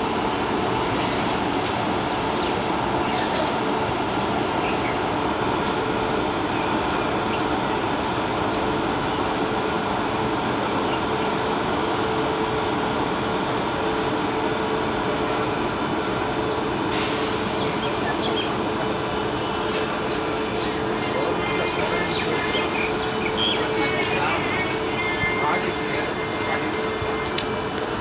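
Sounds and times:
train rumbling past on track: 0:00.0 - 0:28.0
hiss: 0:16.9 - 0:17.9.

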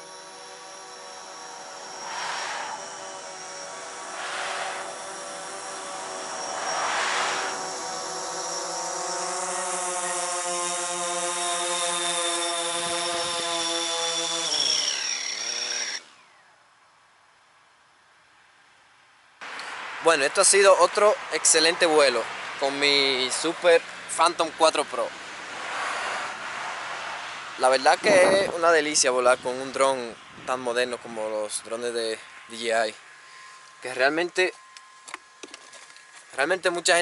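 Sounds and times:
drone propellers whining: 0:00.0 - 0:16.6, 0:31.6 - 0:36.6
rushes of air: 0:02.0 - 0:07.9, 0:25.4 - 0:28.6.

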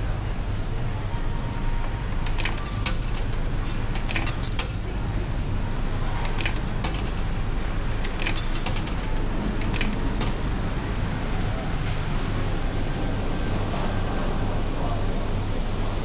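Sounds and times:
steady low hum: 0:00.0 - 0:16.0
coins rattling through vending machine: 0:02.1 - 0:05.0, 0:06.2 - 0:10.6.

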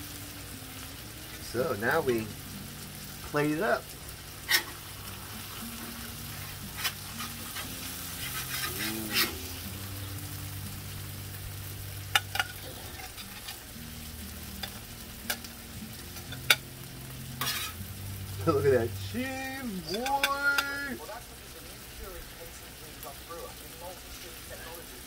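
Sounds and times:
food sizzling on griddle: 0:00.0 - 0:25.0
metal spatula scraping steel: 0:04.4 - 0:09.6, 0:12.1 - 0:13.6, 0:17.4 - 0:17.9.

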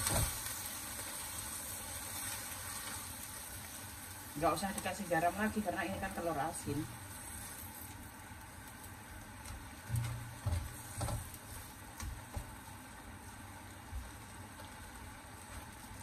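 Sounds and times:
broth bubbling in wok: 0:00.0 - 0:16.0
spatula knocking on pan: 0:09.9 - 0:11.4.

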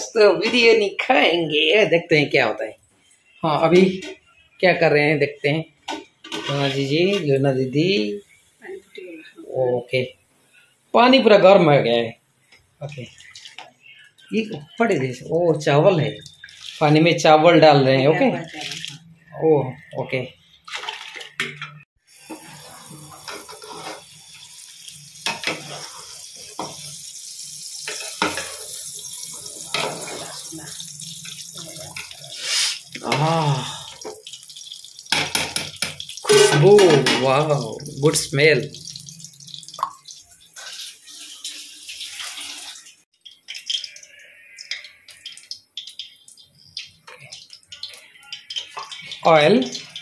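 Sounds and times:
hot oil sizzling and crackling: 0:05.8 - 0:08.9, 0:09.7 - 0:19.9, 0:22.0 - 0:50.0
water sloshing in a pot: 0:15.6 - 0:17.1, 0:20.6 - 0:27.0, 0:27.7 - 0:50.0
steady hiss: 0:32.2 - 0:33.6.

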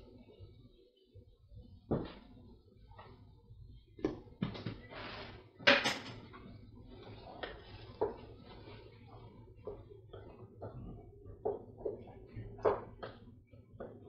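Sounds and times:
clatter of kitchen utensils: 0:05.6 - 0:06.4.

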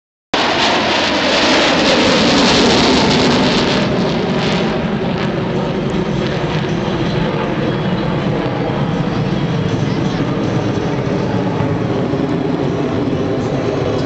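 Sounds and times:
aircraft flying past: 0:00.4 - 0:14.0.

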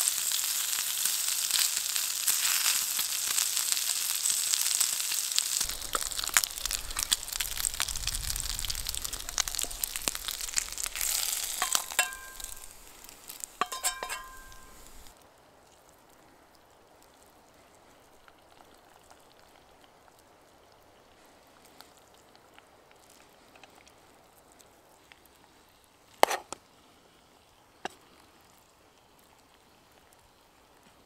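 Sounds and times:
faint ticking from iron pot: 0:08.6 - 0:15.1
metal spoon knocking against pot: 0:11.6 - 0:12.6, 0:13.6 - 0:14.7.

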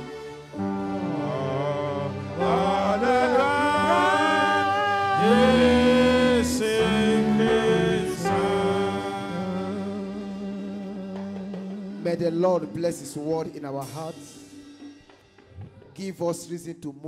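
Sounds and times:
electric keyboard chords: 0:00.0 - 0:13.2
man singing: 0:01.0 - 0:14.2.

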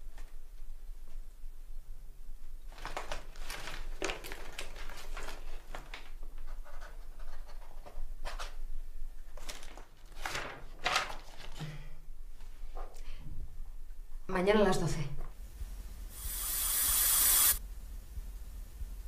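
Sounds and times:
paper rustling: 0:02.7 - 0:08.6, 0:09.3 - 0:11.7.

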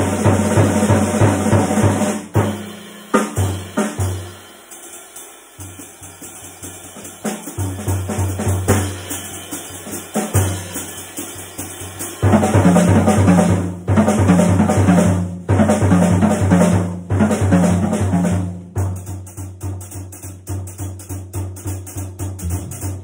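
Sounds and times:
jazz drum kit solo: 0:00.0 - 0:23.0
double bass notes: 0:22.3 - 0:23.0.

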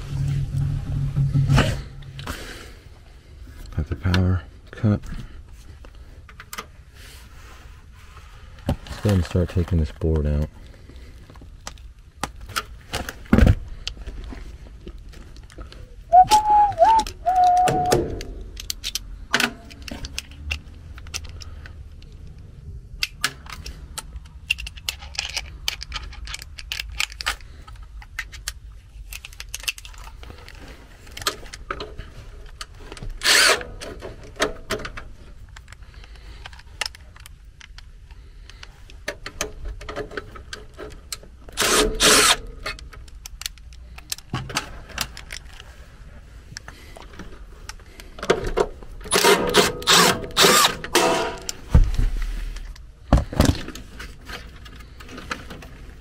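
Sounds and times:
tools and metal panels rattling: 0:48.2 - 0:51.7
power driver whirring: 0:49.2 - 0:50.8.

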